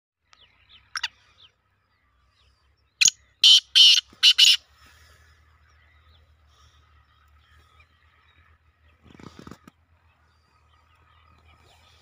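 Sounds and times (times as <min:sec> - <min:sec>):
francolin harsh calls: 0:03.0 - 0:08.6.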